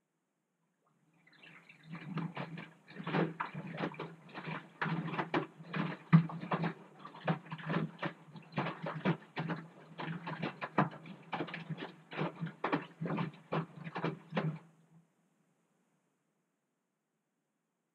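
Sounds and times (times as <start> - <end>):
washing machine low hum: 1.2 - 14.7
laundry sloshing in washing machine: 1.3 - 14.7.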